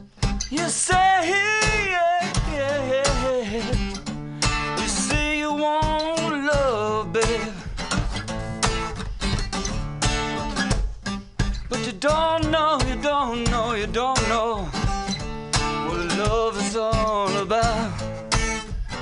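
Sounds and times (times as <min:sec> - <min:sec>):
strummed acoustic guitar: 0:00.0 - 0:19.0
man singing with vibrato: 0:00.5 - 0:04.0, 0:04.6 - 0:07.8, 0:11.7 - 0:15.1, 0:15.7 - 0:18.1.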